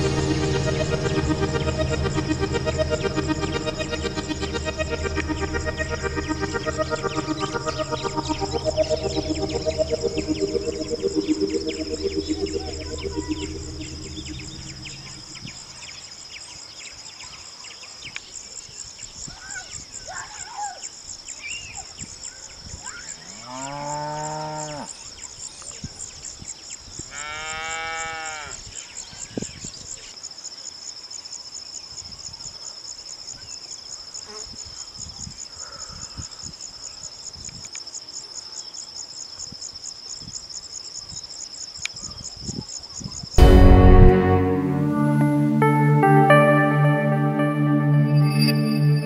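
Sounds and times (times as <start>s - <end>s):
sudden loud burst: 43.4s - 46.3s.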